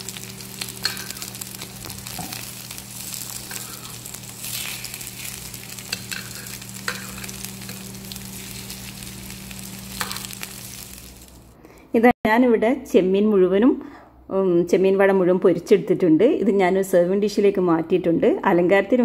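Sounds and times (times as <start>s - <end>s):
patties sizzling in oil: 0.0s - 11.6s.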